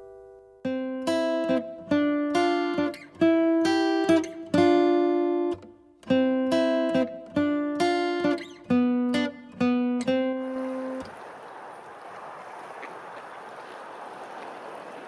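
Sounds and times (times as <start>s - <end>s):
acoustic guitar strummed chords: 0.0s - 11.1s.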